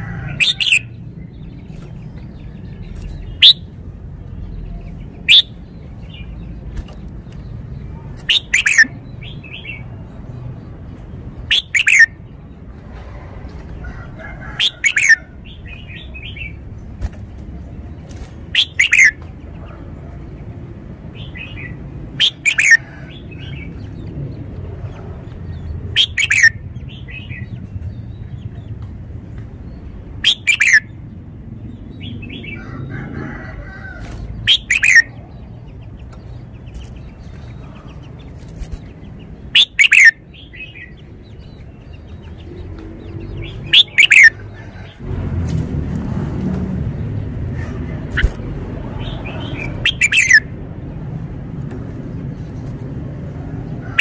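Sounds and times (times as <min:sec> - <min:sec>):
bulbul singing: 0:00.0 - 0:10.0, 0:11.4 - 0:12.3, 0:14.6 - 0:16.9, 0:18.5 - 0:19.2, 0:21.2 - 0:22.8, 0:25.9 - 0:28.6, 0:29.6 - 0:32.6, 0:34.4 - 0:44.5, 0:48.0 - 0:50.6
soft bird chattering: 0:02.8 - 0:03.7, 0:04.4 - 0:09.9, 0:11.4 - 0:12.2, 0:14.6 - 0:16.6, 0:18.1 - 0:19.9, 0:21.2 - 0:22.8, 0:25.4 - 0:28.6, 0:30.2 - 0:31.0, 0:34.4 - 0:42.7, 0:43.3 - 0:44.4, 0:47.5 - 0:50.5.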